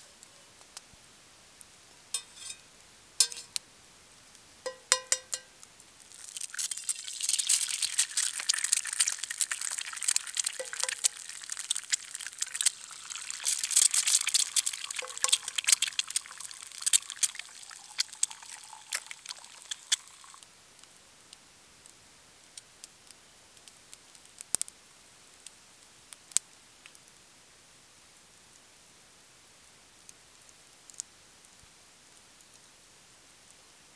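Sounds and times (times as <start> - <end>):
hot fat sizzling: 2.0 - 3.6, 4.6 - 20.4
eggs cracked on a pan: 2.2 - 2.6, 3.2 - 3.6, 4.7 - 20.4.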